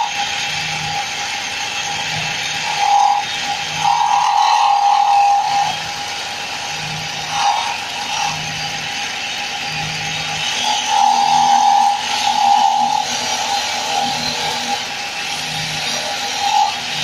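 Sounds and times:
wood lathe whine: 0.0s - 17.0s
chisel cutting hiss: 1.6s - 9.0s.

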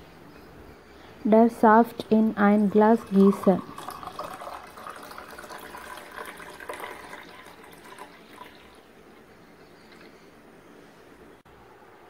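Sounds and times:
juice pouring into a glass: 2.6s - 8.9s.

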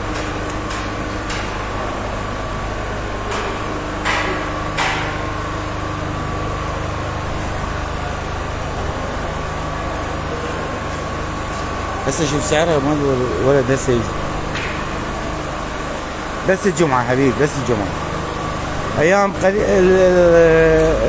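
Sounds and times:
mechanical din with low hum: 0.0s - 21.0s
sharp knocks: 3.3s - 5.3s.

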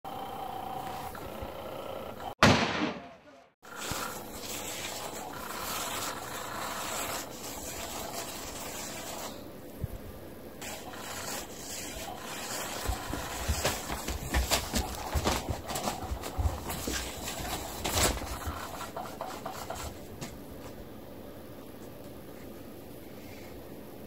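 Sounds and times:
toy motor wand scraping fabric: 3.6s - 9.5s, 10.6s - 20.0s.

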